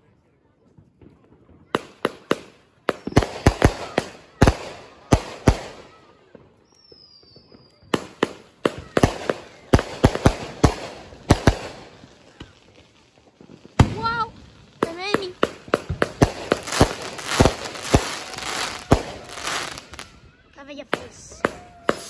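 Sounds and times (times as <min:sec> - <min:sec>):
fireworks bangs and pops: 0:00.6 - 0:22.0
firework high whistle: 0:06.6 - 0:11.0, 0:21.3 - 0:22.0.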